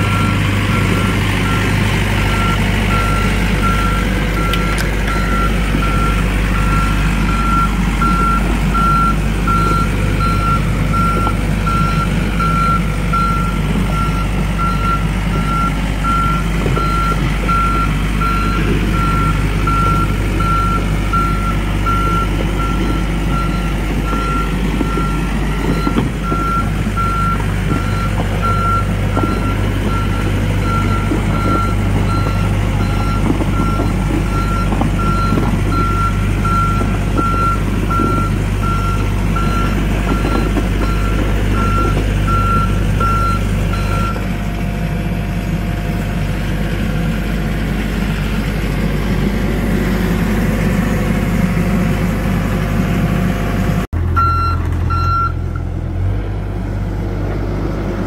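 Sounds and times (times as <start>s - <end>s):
excavator diesel engine running: 0.0s - 58.0s
travel alarm beeping: 54.2s - 55.4s.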